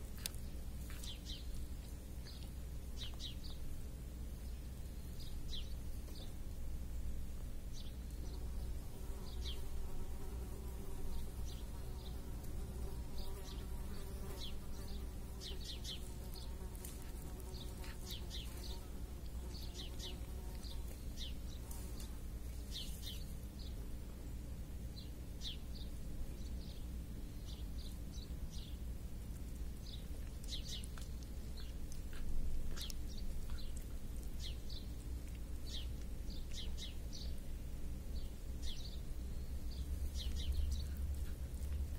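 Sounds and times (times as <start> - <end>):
small birds chirping: 0.0 - 6.6, 7.2 - 41.9
low steady rumble: 0.0 - 41.9.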